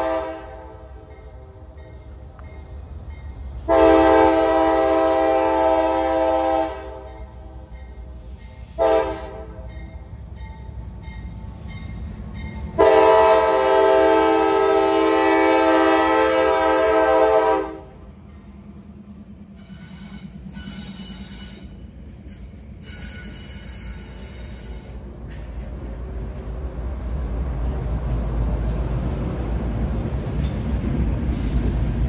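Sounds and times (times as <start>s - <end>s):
locomotive chime horn: 0.0s - 1.6s, 3.6s - 8.0s, 8.6s - 10.1s, 11.1s - 18.1s
diesel engines rumbling: 0.0s - 32.0s.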